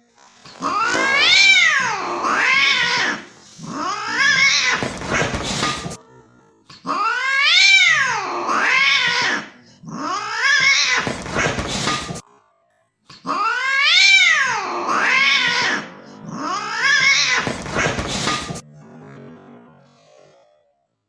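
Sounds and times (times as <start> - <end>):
cat yowling: 0.6 - 11.4, 13.2 - 18.4.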